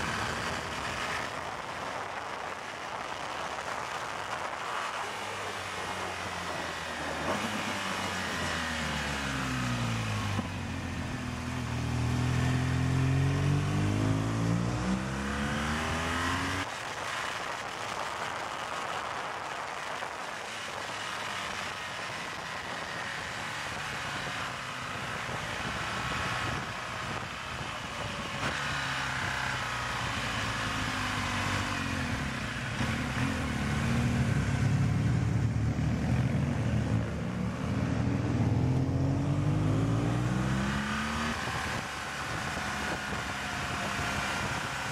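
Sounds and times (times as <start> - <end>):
wind rushing over microphone: 0.0 - 5.5, 6.3 - 44.9
motorcycle engine revving: 6.5 - 16.9, 20.8 - 44.9.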